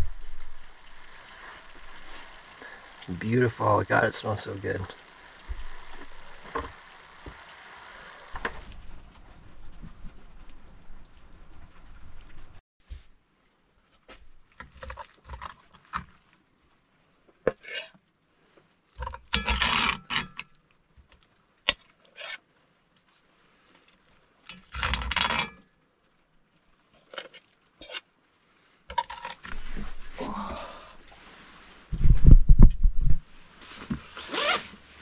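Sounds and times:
soft rustle: 0.0s - 2.6s, 8.2s - 19.1s, 20.5s - 35.0s
metal spoon scraping a pot: 17.6s - 17.9s, 19.3s - 20.4s, 22.1s - 22.4s, 24.5s - 25.6s, 27.8s - 28.0s.

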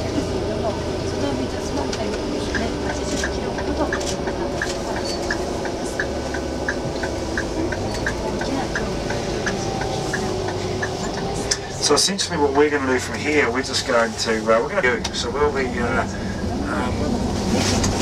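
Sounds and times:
coach engine and road rumble: 0.0s - 18.0s
light regular ticking: 2.0s - 11.6s.

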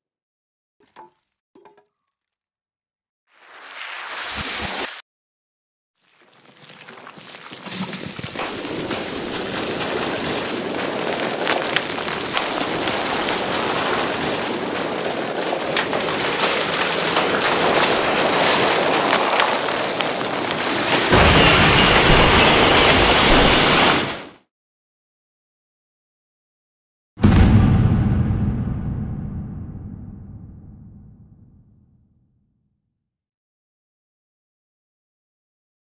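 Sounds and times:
deep rumble: 27.2s - 32.0s.

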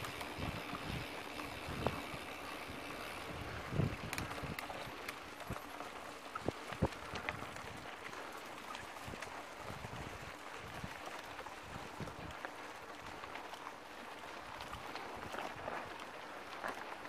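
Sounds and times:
bike clicks and knocks: 0.0s - 7.5s
bike tyres on gravel: 0.0s - 17.0s.

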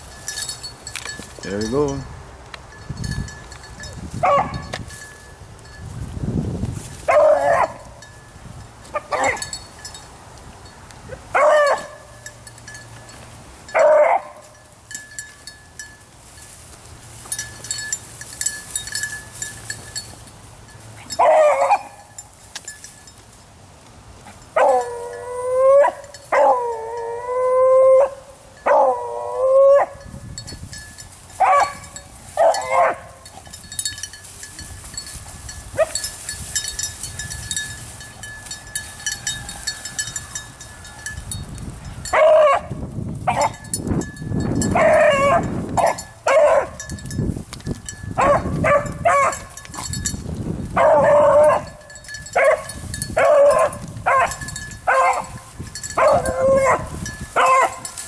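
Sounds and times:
dog baying and barking: 4.2s - 4.7s, 7.1s - 8.0s, 8.9s - 9.5s, 11.1s - 12.1s, 13.7s - 14.5s, 21.1s - 22.0s, 24.6s - 30.0s, 31.4s - 33.2s, 42.1s - 42.7s, 43.3s - 43.6s, 44.7s - 46.8s, 48.2s - 49.5s, 50.8s - 51.8s, 52.4s - 55.4s, 56.0s - 58.0s.

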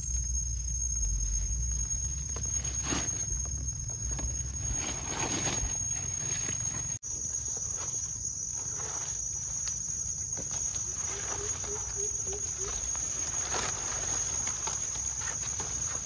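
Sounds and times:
low chirps: 0.0s - 7.0s
high-pitched insect drone: 0.0s - 16.0s
steps rustling in leaf litter: 4.4s - 7.0s, 10.6s - 16.0s.

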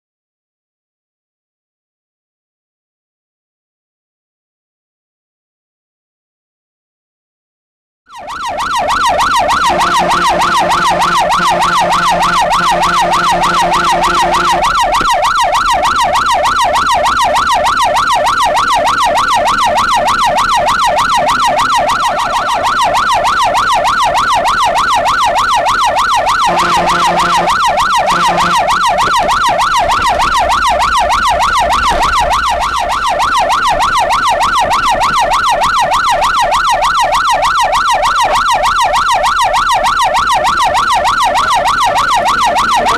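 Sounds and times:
fire engine siren warbling: 8.1s - 42.9s
low steady horn: 9.6s - 14.7s, 26.4s - 29.4s.

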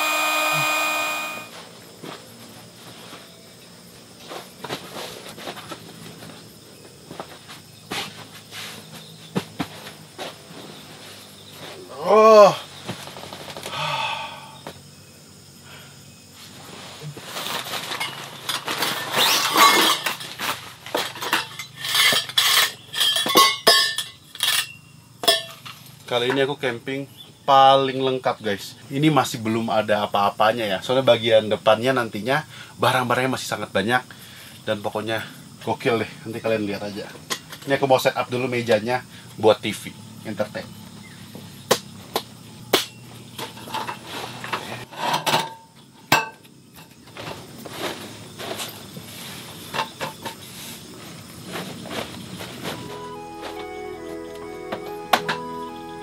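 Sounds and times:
metal table parts clattering: 17.8s - 25.7s, 43.4s - 46.4s
metal poles clinking and rattling: 17.8s - 25.8s.

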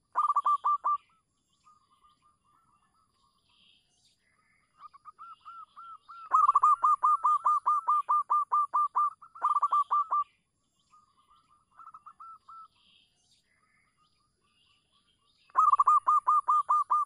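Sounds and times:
dove cooing rapidly: 0.0s - 1.0s, 5.0s - 10.2s, 15.6s - 17.0s.

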